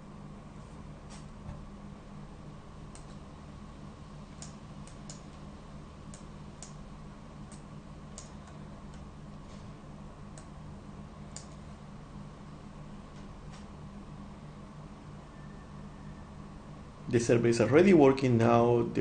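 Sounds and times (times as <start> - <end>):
low electrical hum: 0.0 - 19.0
computer mouse clicks: 2.9 - 3.2, 4.3 - 5.4, 7.5 - 9.1, 11.3 - 11.7.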